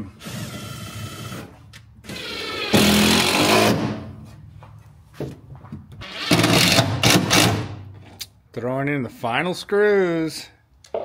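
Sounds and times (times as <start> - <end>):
cordless drill driving screws: 0.2 - 3.8, 6.0 - 7.6.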